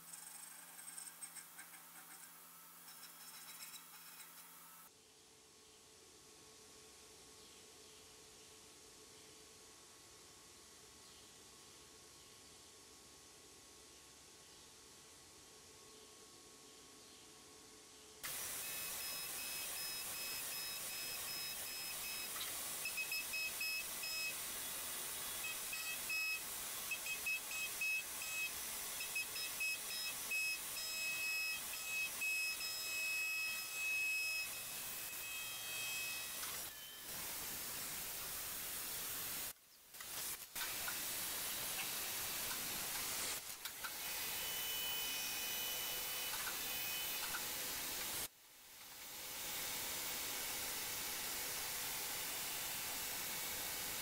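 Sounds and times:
high-pitched end mill whine: 0:18.3 - 0:37.1
coolant spray hiss: 0:37.1 - 0:43.6.

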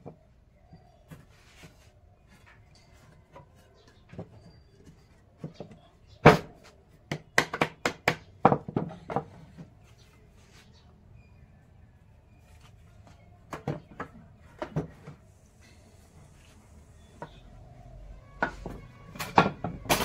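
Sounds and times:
hammering on wood: 0:07.1 - 0:09.3.

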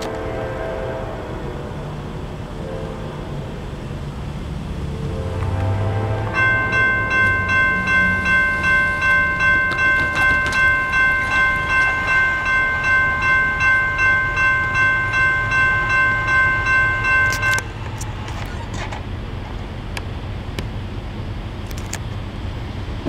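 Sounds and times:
railroad crossing bell ringing: 0:05.4 - 0:18.0.

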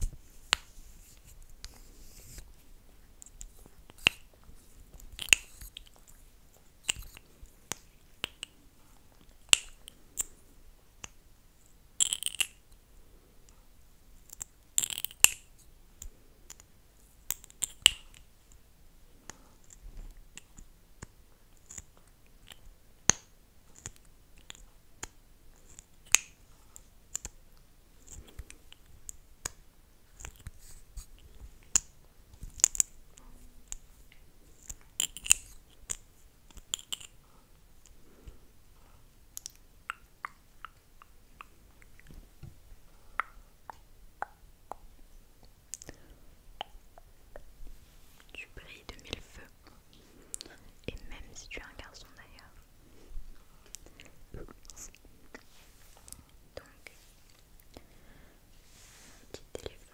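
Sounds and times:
lips smacking with wet clicks: 0:39.4 - 0:42.1.

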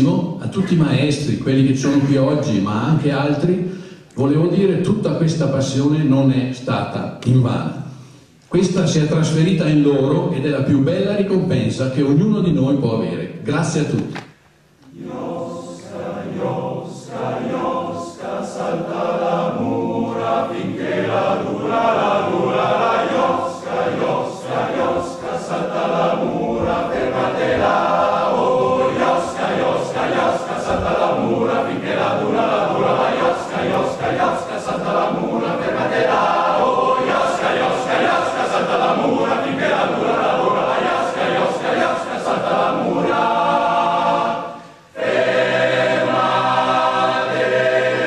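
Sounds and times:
male choir singing: 0:14.9 - 0:48.0.

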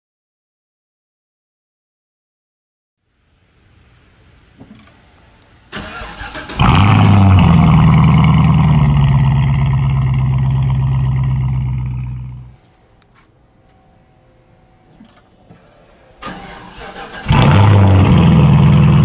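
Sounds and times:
car engine revving and idling: 0:04.6 - 0:12.7, 0:16.2 - 0:19.0
starter motor cranking: 0:05.7 - 0:07.3, 0:16.2 - 0:18.7.

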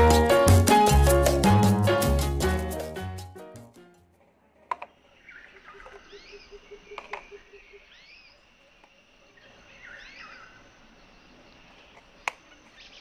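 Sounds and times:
birds chirping faintly: 0:04.3 - 0:13.0.

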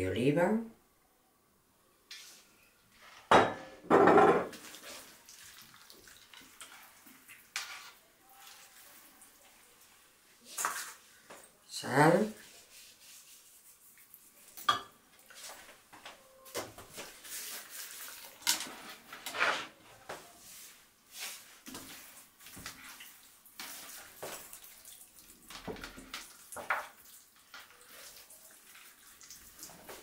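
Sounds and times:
hands rubbing turkey skin: 0:12.4 - 0:14.6, 0:17.0 - 0:18.4, 0:20.2 - 0:24.6.

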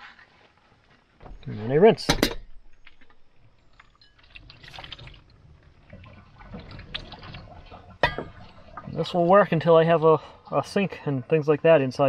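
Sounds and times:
water trickling over plate: 0:02.8 - 0:09.6
water splashing into sink: 0:04.2 - 0:05.3.

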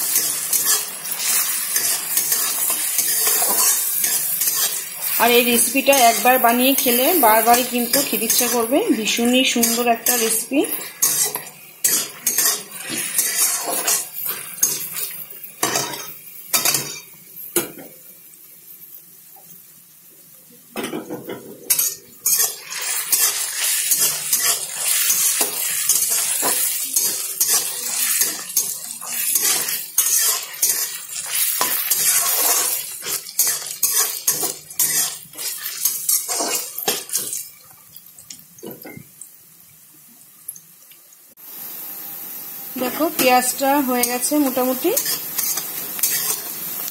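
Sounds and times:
spatula scraping a pan: 0:00.0 - 0:17.0, 0:21.4 - 0:37.4, 0:44.0 - 0:46.9
onions frying in oil: 0:00.0 - 0:46.9.

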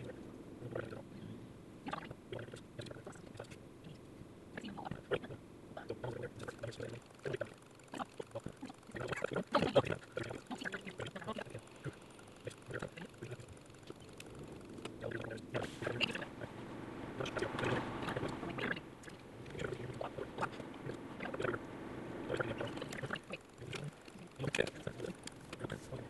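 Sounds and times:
road and engine rumble: 0:05.3 - 0:26.0
rapid clicks and rattles: 0:06.0 - 0:16.2, 0:22.3 - 0:25.8.

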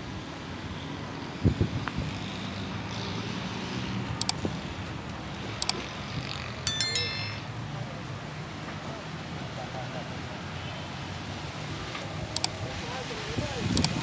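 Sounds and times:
brief high ringing: 0:06.7 - 0:07.5
sharp clicks: 0:13.8 - 0:14.0.

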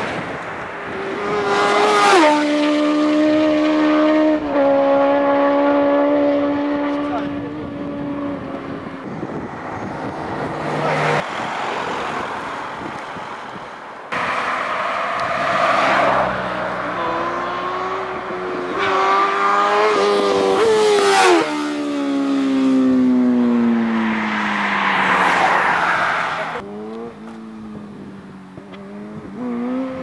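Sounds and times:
passing traffic: 0:00.0 - 0:30.0
motorcycle accelerating past: 0:01.0 - 0:09.0, 0:15.8 - 0:24.6, 0:28.5 - 0:30.0.

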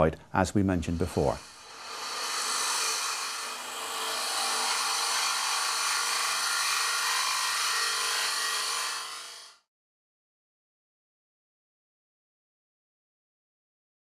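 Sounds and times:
lathe low hum: 0:00.7 - 0:09.4
cutter scraping wooden bowl: 0:00.7 - 0:09.6.

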